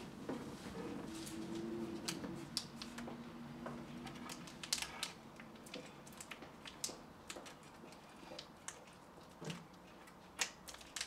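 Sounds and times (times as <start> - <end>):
plastic wrapper crinkling: 4.1 - 7.7.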